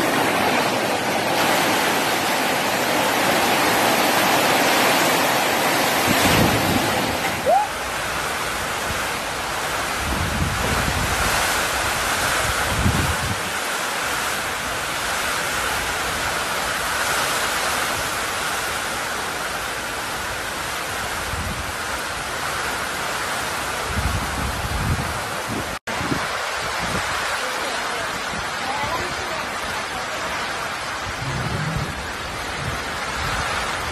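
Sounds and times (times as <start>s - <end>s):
heavy rain pouring: 0.0s - 33.9s
wind buffeting microphone: 5.9s - 13.6s, 23.8s - 27.3s, 30.8s - 33.9s.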